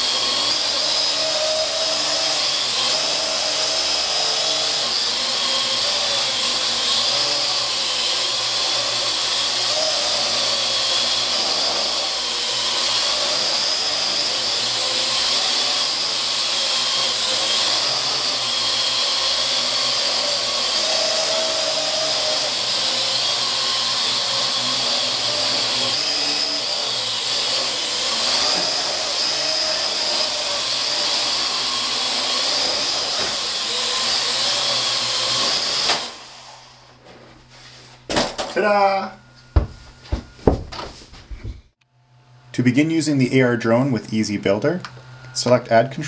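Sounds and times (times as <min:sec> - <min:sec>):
drone propellers whining: 0:00.0 - 0:36.8.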